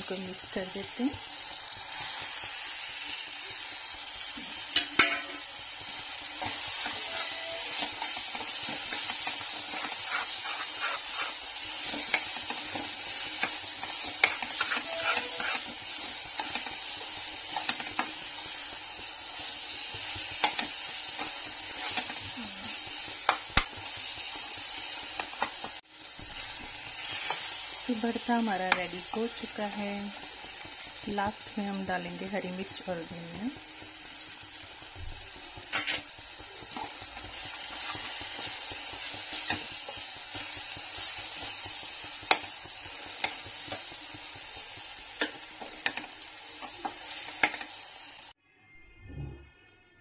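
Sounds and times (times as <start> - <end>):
food sizzling in a pan: 0.0 - 48.4
spoon knocking on a pan: 4.7 - 5.4
metal spoon scraping a pan: 4.7 - 5.6, 6.3 - 18.4, 19.9 - 23.4, 35.7 - 40.5.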